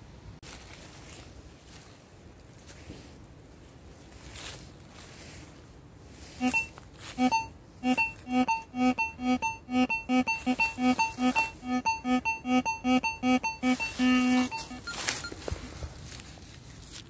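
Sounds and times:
coil rustling through leaves: 0.0 - 8.2, 13.7 - 17.0
metal detector beeping: 6.4 - 15.7.

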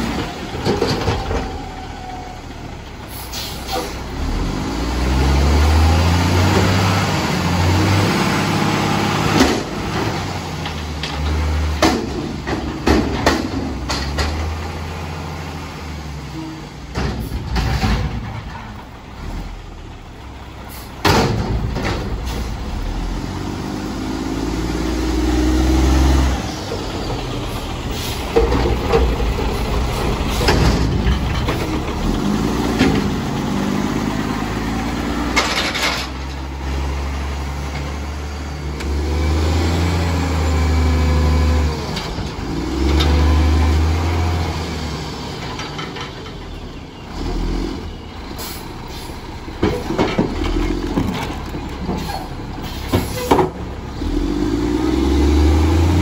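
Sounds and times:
diesel engine revving: 0.0 - 56.0.

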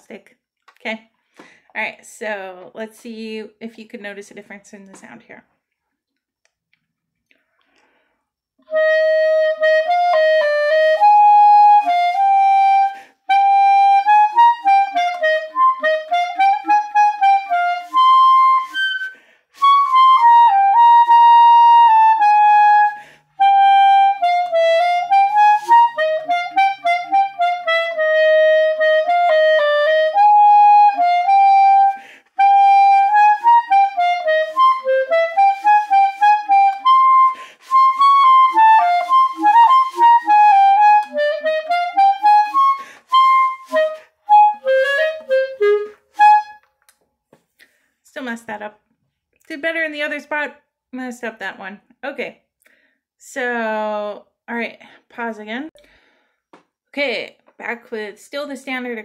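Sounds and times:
clarinet melody: 8.6 - 46.8.

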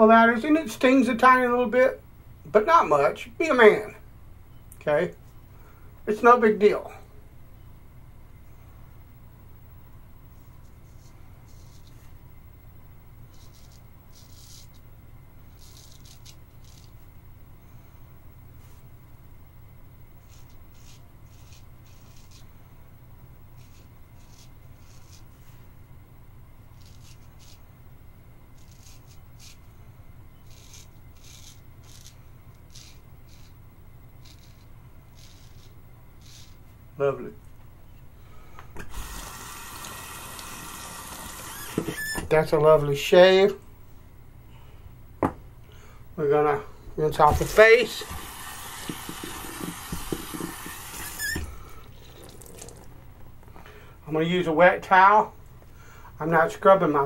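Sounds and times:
razor scraping stubble: 10.5 - 12.2, 13.2 - 17.1, 20.2 - 22.6, 23.5 - 25.7, 26.7 - 27.7, 28.5 - 29.7, 30.4 - 33.6, 34.2 - 36.8, 38.8 - 42.6, 47.1 - 52.9
tap squeaking: 41.6 - 42.3, 48.8 - 51.6
tap water running into sink: 48.0 - 51.2
water splashing on face: 52.1 - 52.9.

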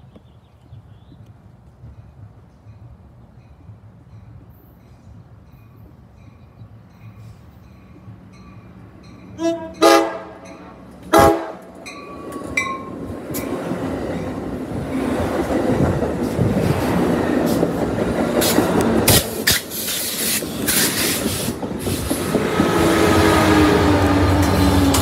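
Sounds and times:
diesel locomotive engine drone: 1.2 - 25.0
train cars rumbling: 1.3 - 25.0
train horn blast: 9.4 - 11.8.

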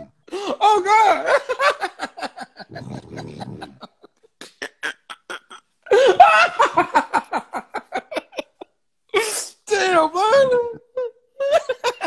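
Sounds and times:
man laughing hard: 5.0 - 8.7.

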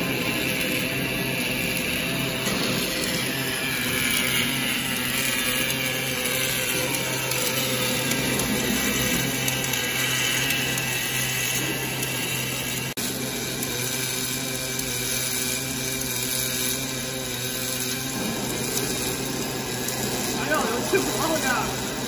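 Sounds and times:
arc welding noise: 0.0 - 22.0.

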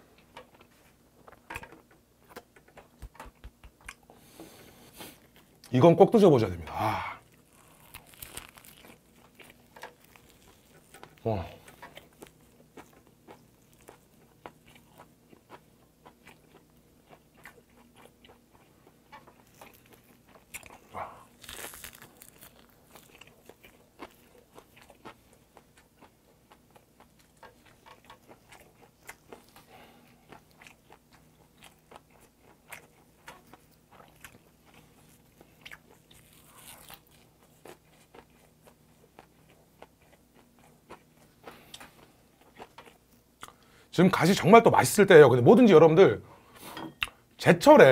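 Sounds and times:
crunchy chewing: 7.2 - 43.8.

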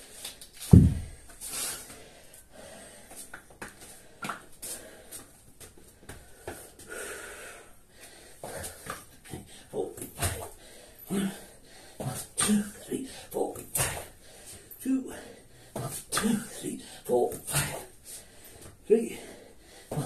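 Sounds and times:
man breathing heavily: 0.0 - 20.0
hands and feet tapping mat: 0.6 - 1.3
kettlebell thud on rubber mat: 0.7 - 1.2.

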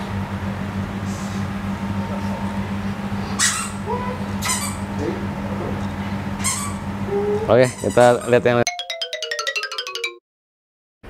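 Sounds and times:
steady low hum: 0.0 - 8.6
short high-pitched squeaks: 7.6 - 8.5.

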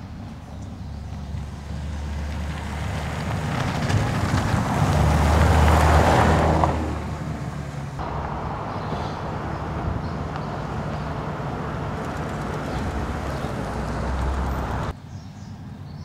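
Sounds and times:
tyre noise on pavement: 0.6 - 15.0
pickup truck driving past: 1.2 - 15.0.

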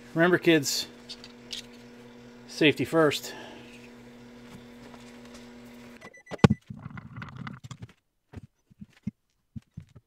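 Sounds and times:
steady hum: 0.0 - 6.5.

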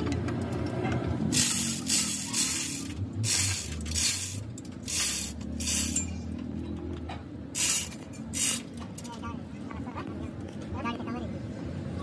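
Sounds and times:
compressed air hissing bursts: 7.6 - 8.7.

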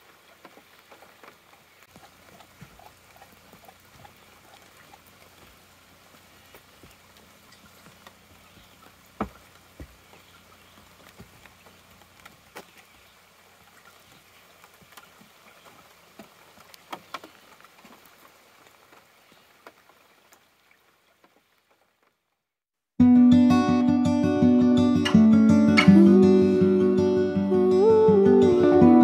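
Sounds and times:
light rain on a pond: 0.0 - 23.0.

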